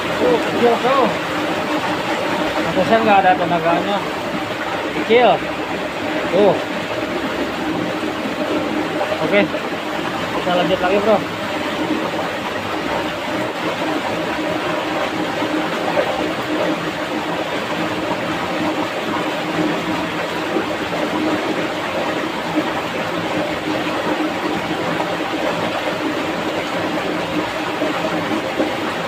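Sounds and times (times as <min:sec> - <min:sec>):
stream rushing over stones: 0:00.0 - 0:29.0.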